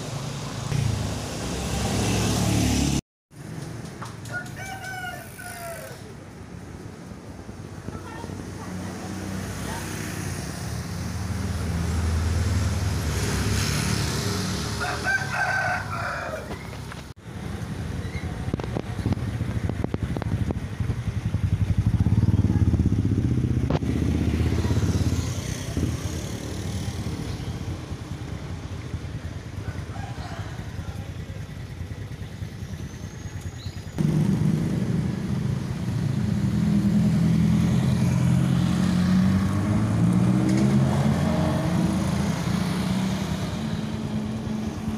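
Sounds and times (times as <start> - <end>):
motorcycles and cars passing: 0.0 - 44.9
rooster crowing: 4.3 - 6.1, 14.7 - 16.7, 29.6 - 31.3.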